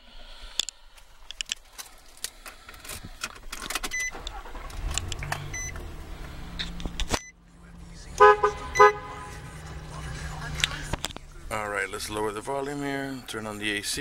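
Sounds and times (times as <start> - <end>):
engine cranking: 1.8 - 7.3
truck horn toots: 8.2 - 9.8.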